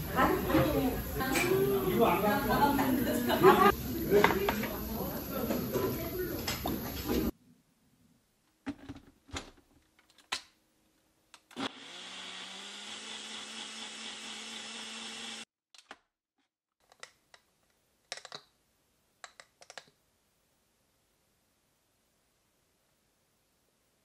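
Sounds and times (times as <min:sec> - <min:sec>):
blender motor blending: 0:11.6 - 0:15.5.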